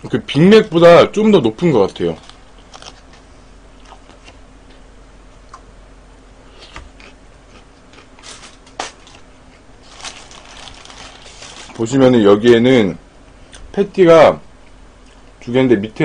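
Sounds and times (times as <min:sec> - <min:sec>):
paper wrapping crinkling: 0:01.9 - 0:03.2, 0:09.8 - 0:12.0.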